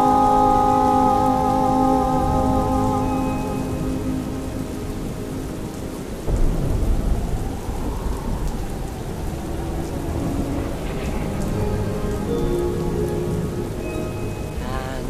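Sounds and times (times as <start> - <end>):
steady rain: 0.0 - 15.0
thunder rumbling: 1.2 - 15.0.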